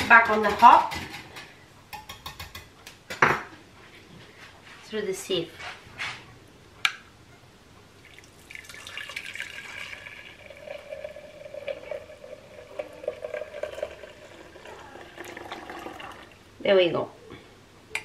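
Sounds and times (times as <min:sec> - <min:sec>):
liquid trickling through sieve: 0:08.0 - 0:16.4.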